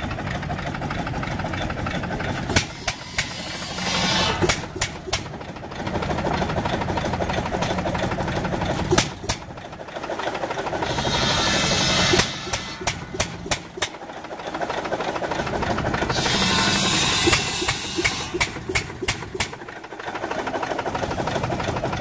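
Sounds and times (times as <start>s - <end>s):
circular saw cutting wood: 2.6s - 5.3s, 10.6s - 13.9s, 16.0s - 19.5s
engine firing knocks: 4.4s - 20.2s.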